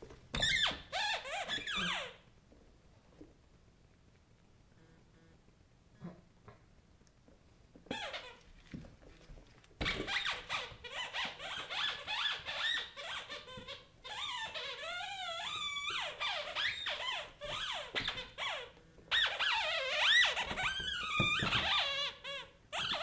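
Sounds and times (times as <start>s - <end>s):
squeaky toy squeaking: 0.4s - 2.2s, 7.9s - 8.4s, 9.8s - 23.0s.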